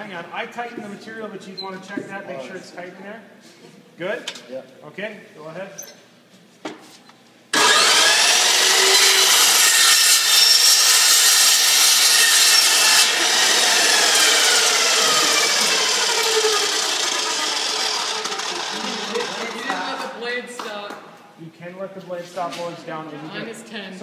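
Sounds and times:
chop saw cutting metal tubing: 7.5s - 20.0s.

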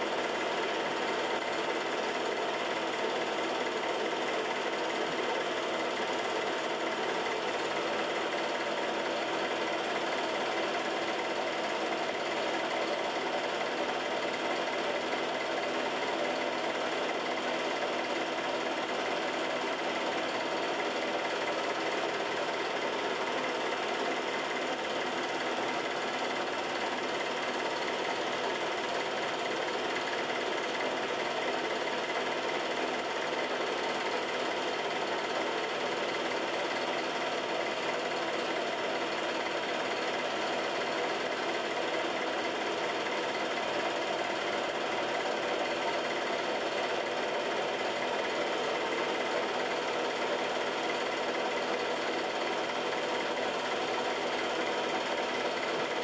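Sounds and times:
film projector whirring: 0.0s - 56.0s.

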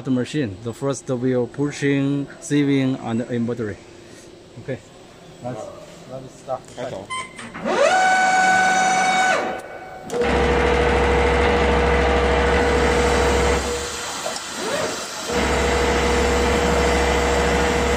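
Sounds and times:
sewing machine motor whine: 7.6s - 17.9s
sewing machine running: 10.1s - 14.0s, 14.6s - 17.9s.

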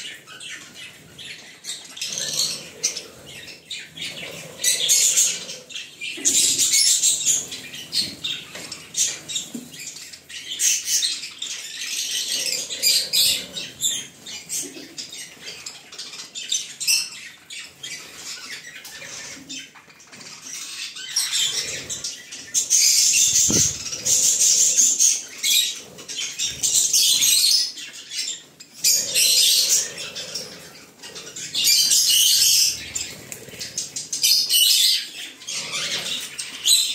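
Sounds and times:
budgerigars chattering: 20.4s - 36.9s.

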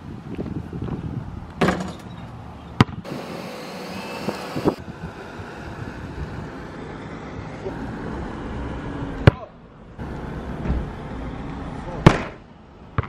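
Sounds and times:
basketball hitting asphalt: 2.8s - 3.1s, 12.0s - 13.0s.

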